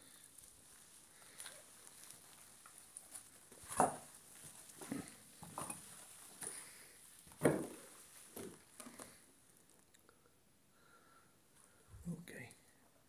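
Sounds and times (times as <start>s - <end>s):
footsteps crunching over rubble: 0.0s - 9.2s.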